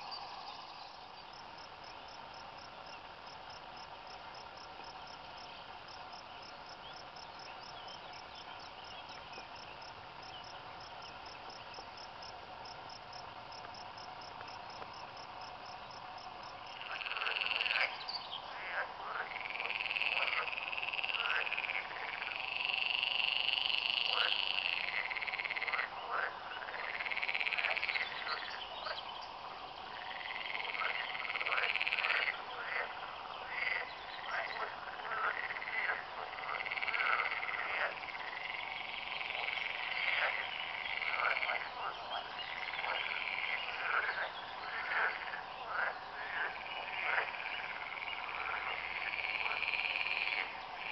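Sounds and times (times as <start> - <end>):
frogs croaking: 0.0 - 50.9
insects chirring: 0.0 - 50.9.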